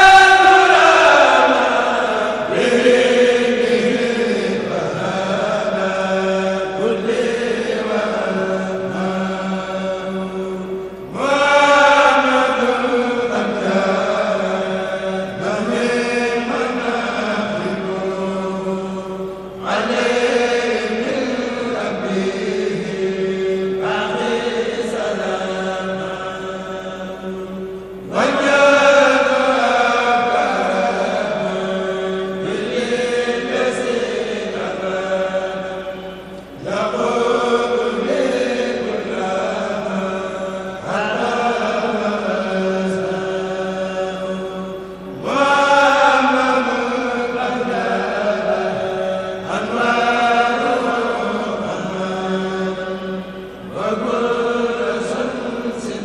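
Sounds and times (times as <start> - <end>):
men chanting a cappella: 0.0 - 56.0.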